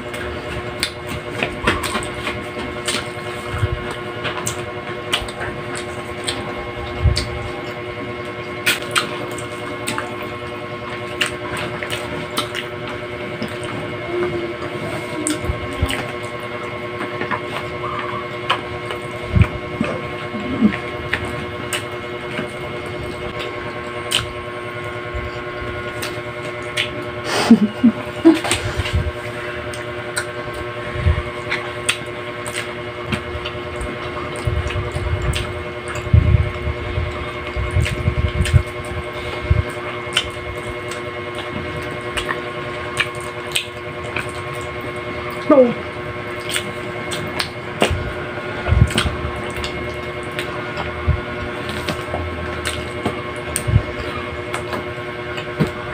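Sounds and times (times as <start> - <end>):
chewing and lip-smacking: 0.0 - 55.9
electrical hum: 0.0 - 55.9
low rumbling thumps: 34.5 - 39.7.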